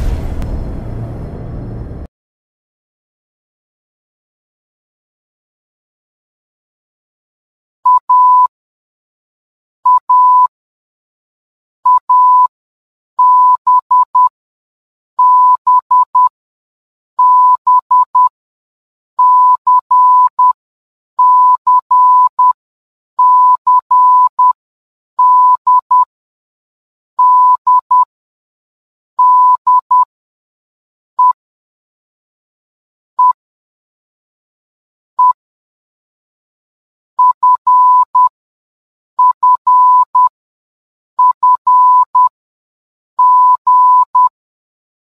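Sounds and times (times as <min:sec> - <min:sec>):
morse code beeps: 0:07.9 - 0:08.5, 0:09.9 - 0:10.5, 0:11.9 - 0:12.5, 0:13.2 - 0:14.3, 0:15.2 - 0:16.3, 0:17.2 - 0:18.3, 0:19.2 - 0:20.6, 0:21.2 - 0:22.6, 0:23.2 - 0:24.6, 0:25.2 - 0:26.1, 0:27.2 - 0:28.0, 0:29.2 - 0:30.1, 0:37.2 - 0:38.3, 0:39.2 - 0:40.3, 0:41.2 - 0:42.3, 0:43.2 - 0:44.3.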